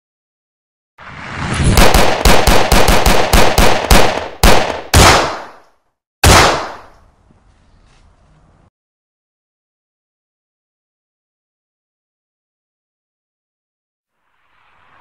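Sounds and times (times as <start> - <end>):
gunshots: 1.2 - 5.6, 6.2 - 7.0.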